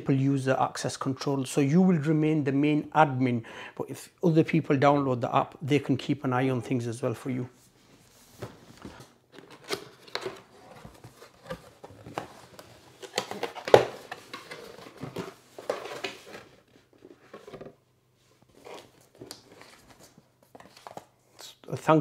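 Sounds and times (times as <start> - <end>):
cardboard box being handled: 8.3 - 16.5.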